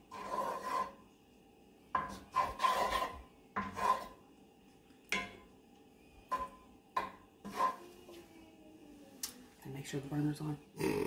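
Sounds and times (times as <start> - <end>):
wooden spoon scraping skillet: 0.0 - 1.1, 1.9 - 4.2, 7.4 - 8.0.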